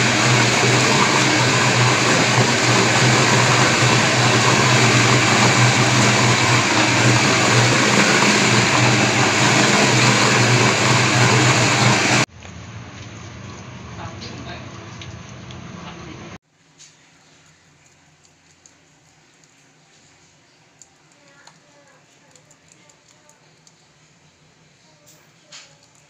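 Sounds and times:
bowl cutter motor drone: 0:00.0 - 0:12.3.

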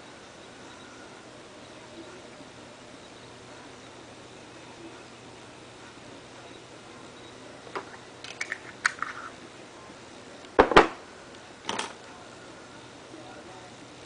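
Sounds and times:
objects knocking on hard surface: 0:10.6 - 0:11.0.

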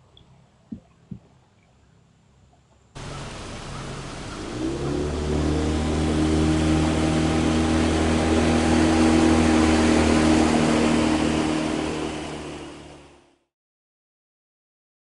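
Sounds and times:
outboard motor running: 0:03.0 - 0:13.4.

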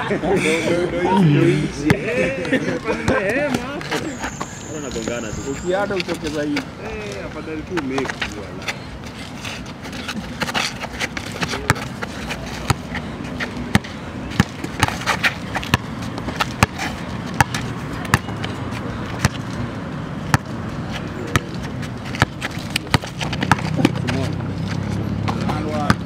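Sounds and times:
basketball bouncing on pavers: 0:10.4 - 0:19.5, 0:20.2 - 0:20.6, 0:21.2 - 0:26.0.

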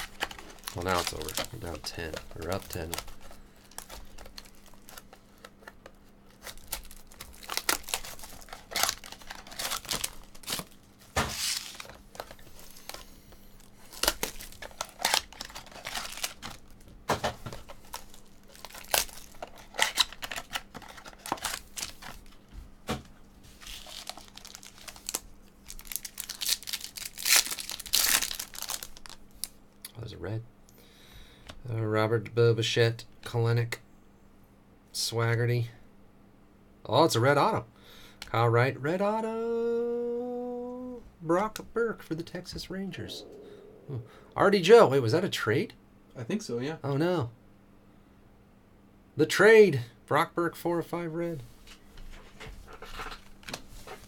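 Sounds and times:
foil wrappers crinkling and tearing: 0:00.0 - 0:16.8, 0:17.5 - 0:22.4, 0:23.5 - 0:29.6.

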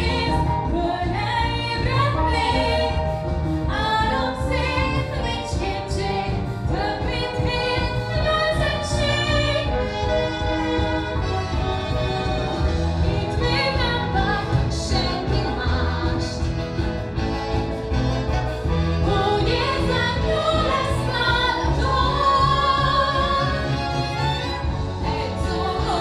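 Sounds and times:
instrumental accompaniment with beat: 0:00.0 - 0:26.0
woman and girls singing: 0:25.1 - 0:26.0.

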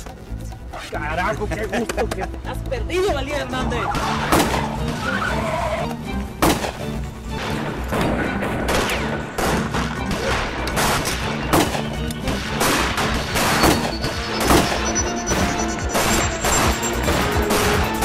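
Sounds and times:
background music: 0:00.0 - 0:18.0
handgun shots: 0:08.7 - 0:13.9.

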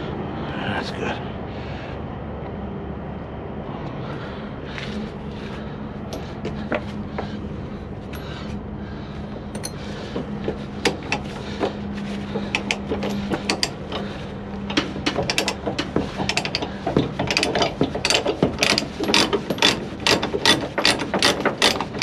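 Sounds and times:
steady low hum: 0:00.0 - 0:22.0
metallic ratchet clicks and chain clanks: 0:09.5 - 0:09.8, 0:12.5 - 0:14.1, 0:14.7 - 0:22.0.

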